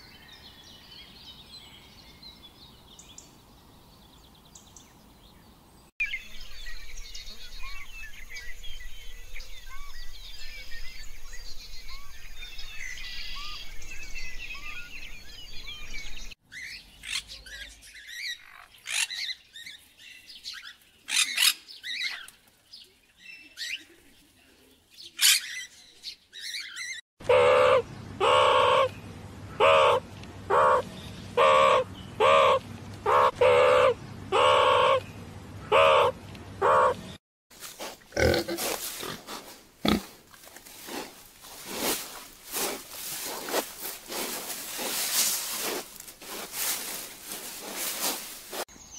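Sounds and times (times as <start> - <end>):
meerkats calling loudly: 27.2 - 28.9, 29.5 - 30.8, 31.4 - 35.0, 35.6 - 37.0
pigs grunting: 38.1 - 40.2.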